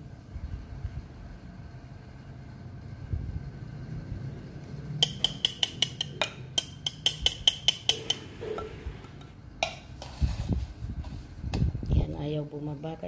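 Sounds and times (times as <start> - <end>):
metal taps on steel strainer: 5.0 - 8.3.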